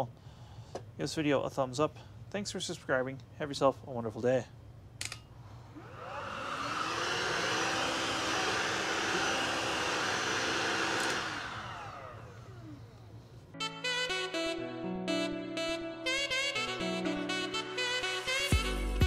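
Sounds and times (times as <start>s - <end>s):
vacuum cleaner motor whining: 5.7s - 13.2s
music: 13.5s - 19.0s.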